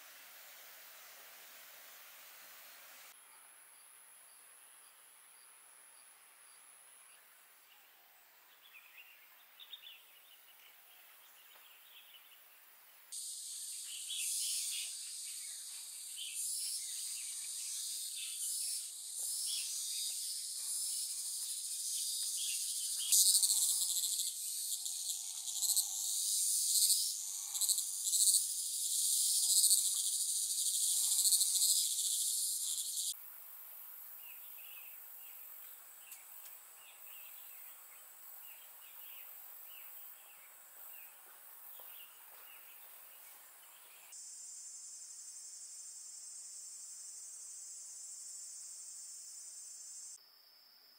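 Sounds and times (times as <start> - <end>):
insects singing: 13.2 - 33.2.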